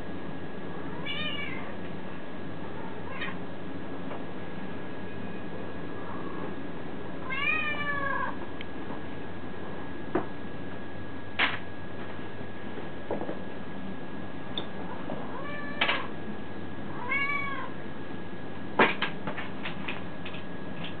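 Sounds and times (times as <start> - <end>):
cat meowing: 0.9 - 1.7, 2.9 - 3.4, 7.2 - 8.4, 15.3 - 16.1, 17.0 - 17.7.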